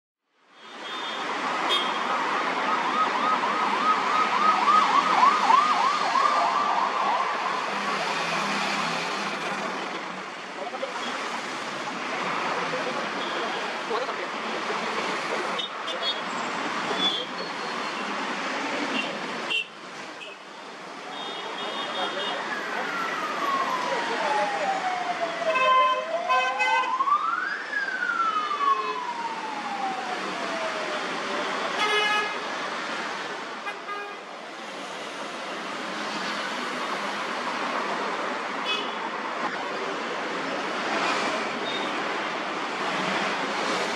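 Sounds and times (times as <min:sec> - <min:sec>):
heavy road traffic: 0:00.2 - 0:43.9
ambulance siren yelping: 0:02.1 - 0:08.2, 0:22.2 - 0:31.2.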